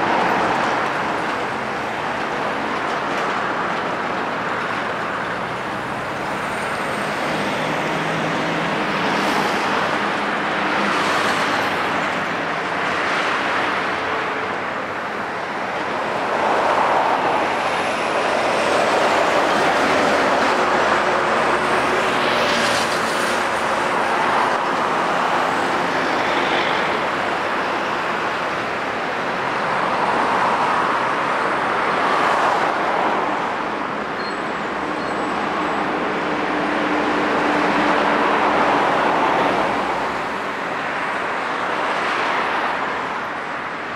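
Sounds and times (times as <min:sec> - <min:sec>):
trucks and cars passing: 0:00.0 - 0:43.9.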